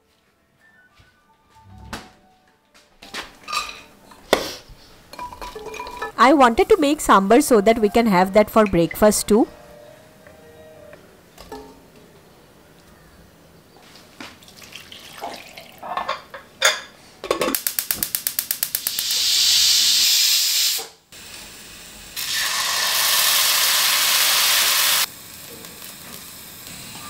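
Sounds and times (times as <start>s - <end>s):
steam hissing whistle: 18.9s - 21.5s, 22.2s - 25.1s, 26.7s - 27.0s.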